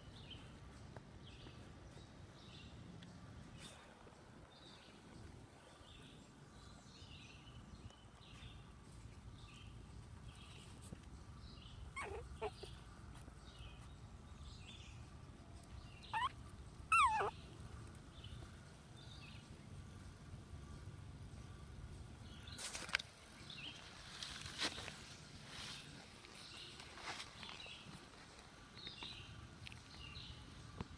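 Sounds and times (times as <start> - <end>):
puppies yelping: 11.9 - 12.8, 16.1 - 17.5.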